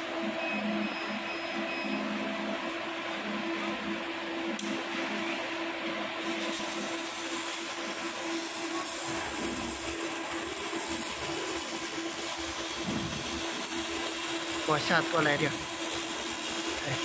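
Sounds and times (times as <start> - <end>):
steady machine hum: 0.0 - 17.0
laser cleaning high hiss: 6.2 - 17.0.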